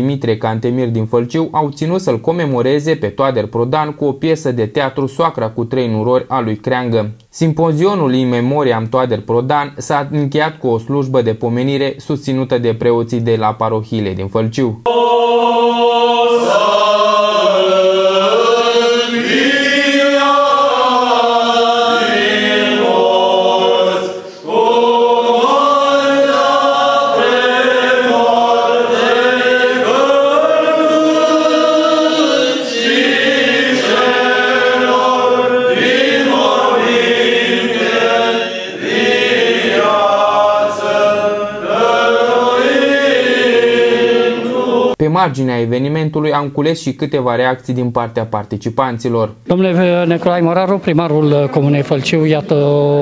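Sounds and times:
priests chanting: 0:14.8 - 0:45.0.

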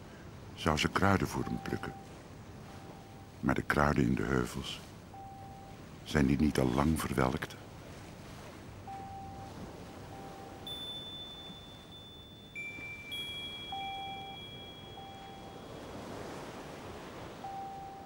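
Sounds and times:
high ringing chime tones: 0:01.4 - 0:02.1, 0:05.1 - 0:05.8, 0:08.9 - 0:18.0
short lower tone: 0:08.9 - 0:16.6.

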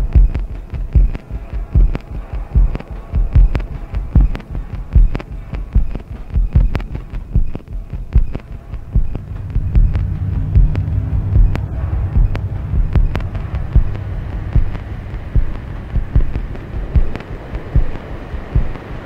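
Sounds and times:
low steady hum: 0:00.0 - 0:19.0
deep electronic thump: 0:08.2 - 0:18.0.

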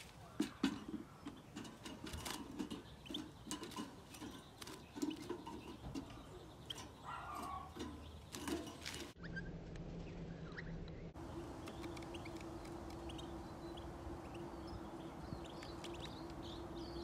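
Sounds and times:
wire cage clicks and rattles: 0:00.4 - 0:09.2.

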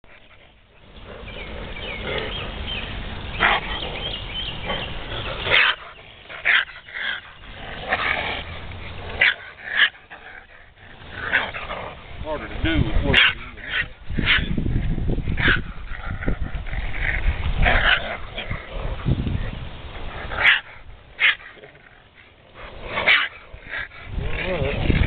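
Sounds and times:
raccoon growling and yelping: 0:20.2 - 0:25.0.

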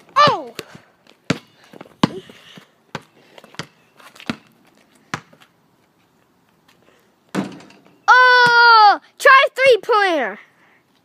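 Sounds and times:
basketball bouncing on concrete: 0:00.1 - 0:04.5, 0:05.1 - 0:05.4
ball hitting backboard and rim: 0:03.6 - 0:04.4, 0:07.3 - 0:08.7.

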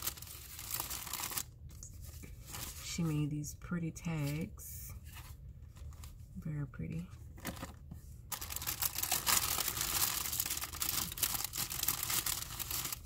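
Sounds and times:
cellophane bag crinkling: 0:00.0 - 0:01.6, 0:08.3 - 0:13.0.

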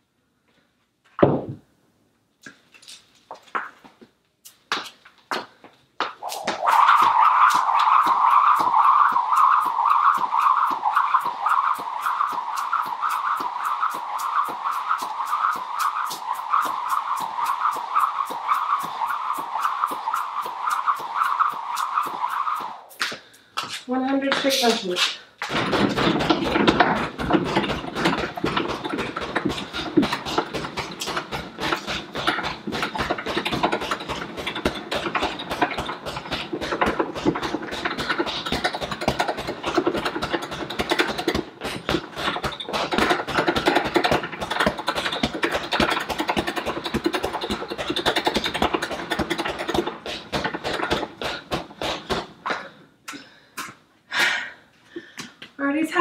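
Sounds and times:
punches hitting a heavy bag: 0:25.5 - 0:52.3.

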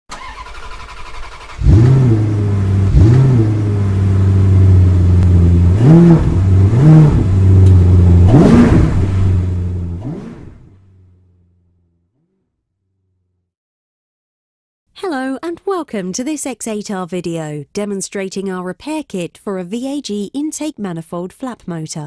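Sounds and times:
car engine idling and revving: 0:00.1 - 0:13.4.

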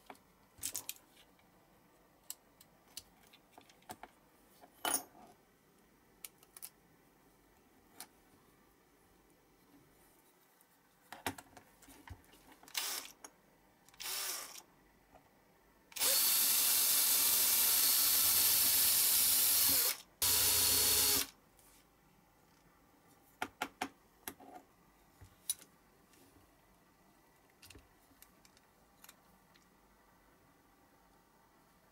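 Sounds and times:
cordless drill drilling metal: 0:12.8 - 0:13.1, 0:14.0 - 0:14.6, 0:16.0 - 0:21.3.

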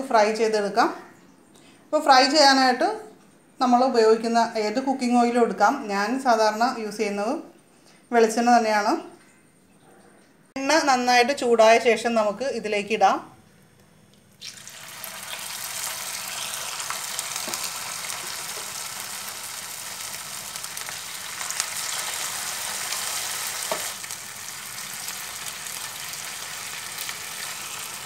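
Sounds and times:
batter sizzling in hot oil: 0:14.4 - 0:28.0.

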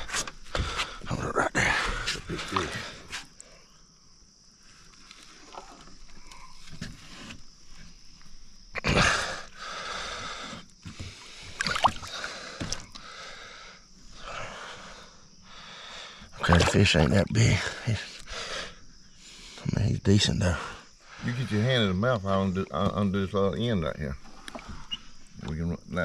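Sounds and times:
water splashing against boat: 0:10.9 - 0:13.0, 0:16.4 - 0:17.6.

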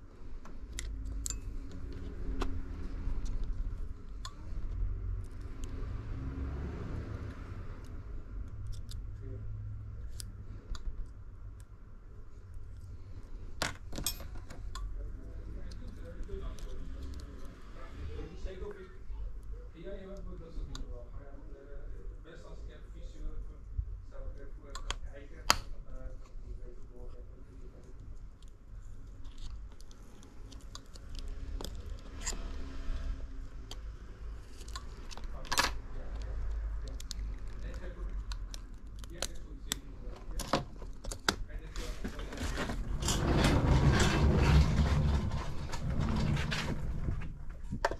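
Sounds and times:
low steady hum: 0:00.0 - 0:47.9
small tools clicking and tapping: 0:00.4 - 0:02.5
tools and phone parts clicking: 0:00.4 - 0:05.7, 0:07.8 - 0:09.1, 0:13.6 - 0:14.9, 0:28.4 - 0:32.7, 0:33.6 - 0:41.4
low rumble: 0:42.1 - 0:47.8.

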